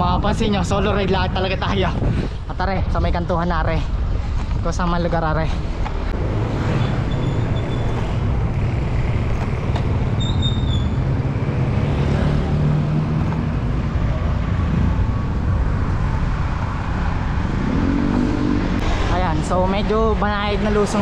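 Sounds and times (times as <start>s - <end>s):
wind rumble on microphone: 0.0s - 21.0s
motor traffic: 5.2s - 21.0s
bicycle tyre noise: 6.5s - 11.0s.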